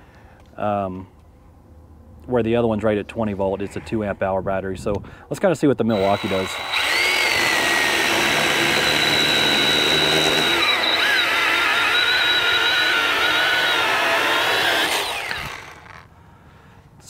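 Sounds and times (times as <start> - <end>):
chainsaw cutting wood: 5.9 - 16.1.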